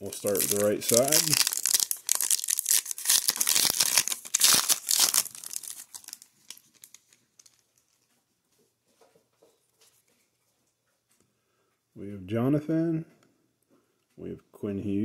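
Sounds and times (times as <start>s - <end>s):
foil wrapper tearing and crinkling: 0.0s - 8.0s
cards rustling: 0.0s - 8.1s.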